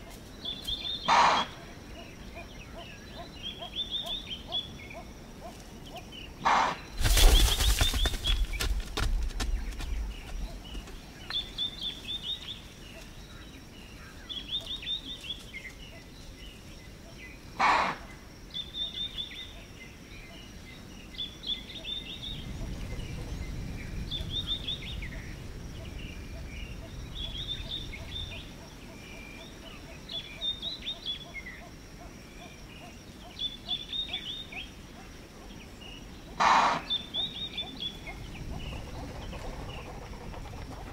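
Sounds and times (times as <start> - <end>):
impala alarm snort: 1.1 - 1.7, 6.4 - 6.9, 17.6 - 18.1, 36.4 - 37.0.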